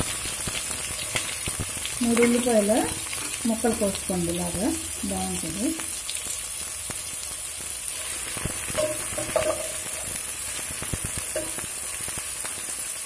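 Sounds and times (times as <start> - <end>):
onions sizzling in hot oil: 0.0 - 13.0
spatula scraping and tapping pan: 8.3 - 10.2, 10.9 - 11.7.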